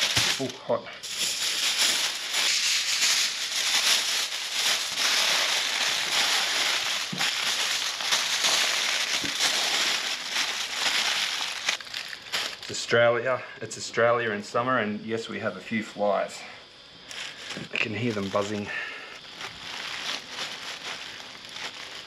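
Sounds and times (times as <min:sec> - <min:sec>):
aluminium foil crinkling: 0:00.0 - 0:12.8, 0:17.1 - 0:22.0.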